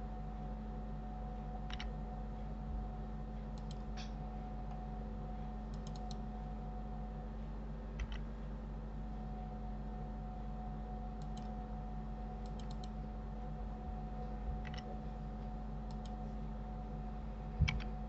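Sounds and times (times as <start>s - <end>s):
low electrical hum: 0.0s - 18.0s
mouse and keyboard clicks: 1.7s - 1.9s, 3.6s - 4.1s, 5.7s - 6.2s, 8.0s - 8.2s, 12.5s - 13.0s, 14.6s - 14.9s, 17.6s - 17.9s.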